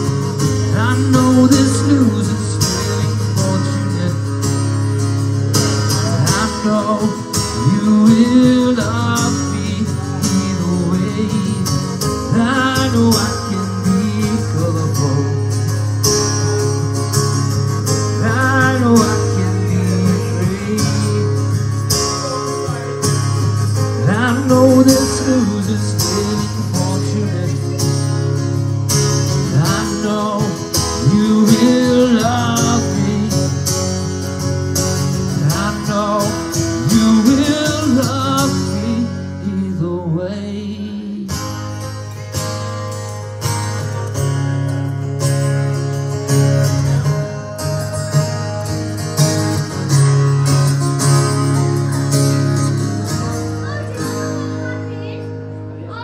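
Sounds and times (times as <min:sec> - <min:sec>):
man singing country song: 0:00.0 - 0:44.0
strummed acoustic guitar: 0:00.0 - 0:56.0.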